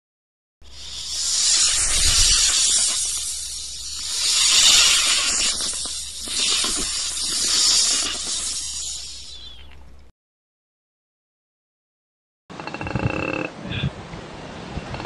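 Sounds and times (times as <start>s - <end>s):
snake hissing: 0.6s - 9.7s.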